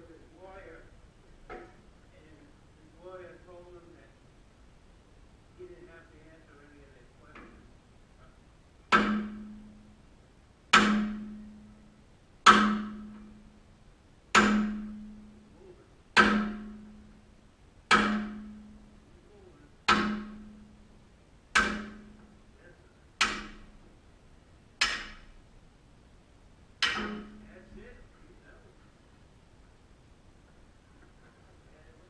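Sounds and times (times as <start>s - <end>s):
hammer blows on steel: 8.9s - 9.9s, 12.5s - 13.5s, 21.6s - 22.3s.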